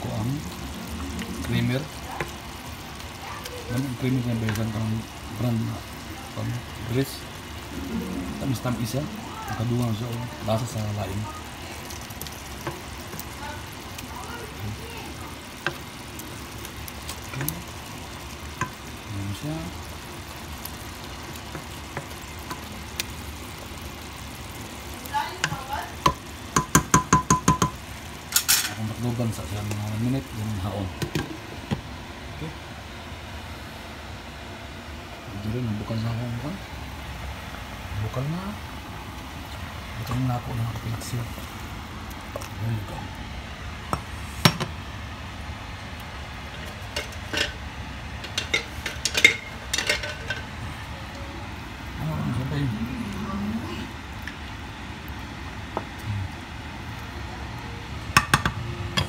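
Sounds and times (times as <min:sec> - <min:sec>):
broth boiling in a pan: 0:00.0 - 0:59.0
low hum: 0:07.4 - 0:09.7
cookware clinking against pan: 0:26.6 - 0:27.8, 0:48.3 - 0:50.4
ringing knock on metal pot: 0:26.6 - 0:27.8.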